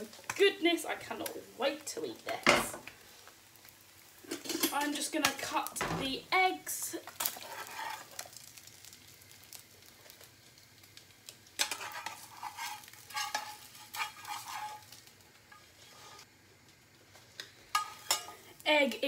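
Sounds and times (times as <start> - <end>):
eggs sizzling: 0.0 - 19.0
metal spatula scraping frying pan: 7.2 - 8.2, 11.6 - 16.3, 17.7 - 18.5.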